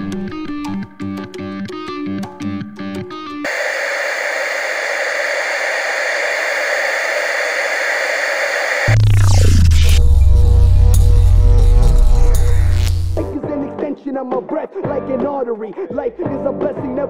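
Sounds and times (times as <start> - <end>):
background guitar music: 0.0 - 3.4
falling sweep: 3.5 - 10.0
tv static hiss: 3.5 - 13.3
deep hum: 8.9 - 13.3.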